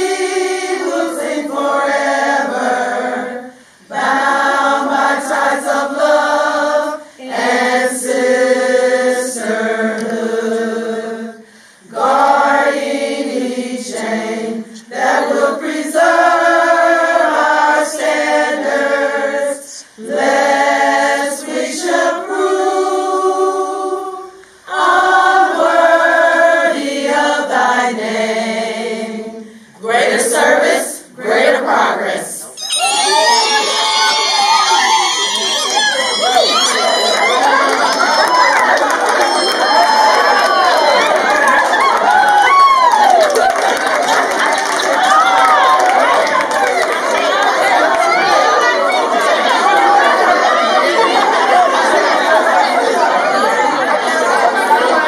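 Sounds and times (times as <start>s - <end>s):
women singing unaccompanied: 0.0s - 32.6s.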